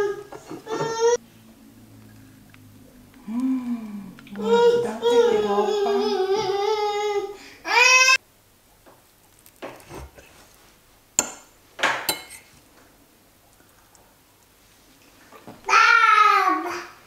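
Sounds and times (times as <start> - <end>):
fork scraping on plate: 12.1 - 12.5.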